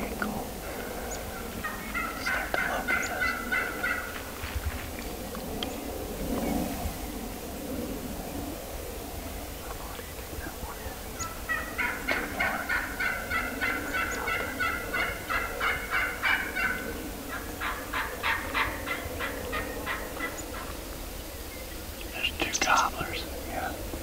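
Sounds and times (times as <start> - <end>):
wild turkeys calling: 0.0 - 7.1, 9.6 - 23.8.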